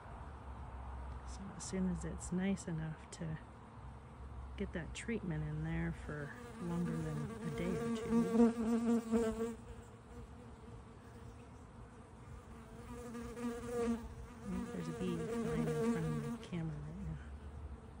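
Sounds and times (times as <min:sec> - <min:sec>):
honey bees buzzing: 0:05.9 - 0:18.0.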